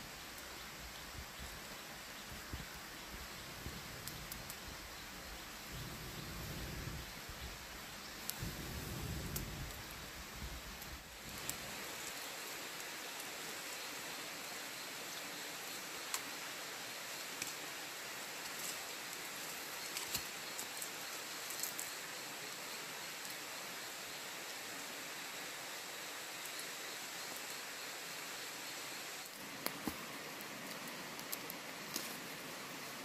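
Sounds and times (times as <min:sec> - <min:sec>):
wood fire hissing and crackling: 0:00.0 - 0:33.0
sticks raking through embers: 0:18.4 - 0:22.0, 0:29.2 - 0:33.0.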